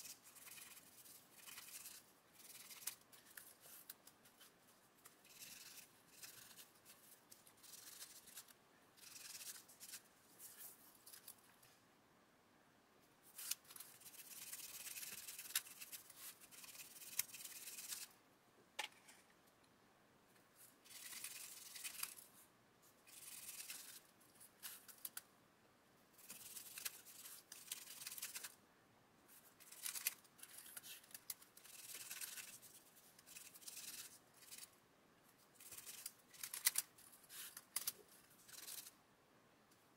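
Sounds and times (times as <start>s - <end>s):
fingertips scrubbing model parts: 0.0s - 11.4s, 13.3s - 18.2s, 23.1s - 25.2s, 29.4s - 34.8s, 35.6s - 38.9s
small plastic clicks: 35.8s - 36.9s.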